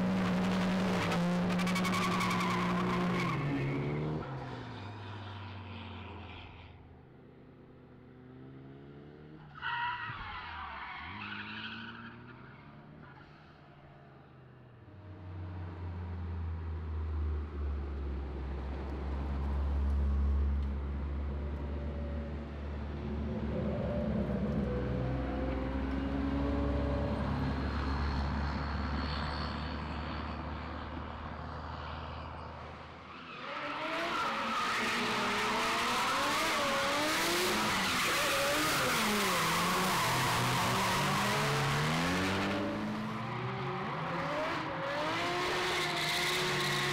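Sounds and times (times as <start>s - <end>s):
car engines revving: 0.0s - 6.6s, 21.4s - 46.9s
car engines droning: 0.0s - 46.9s.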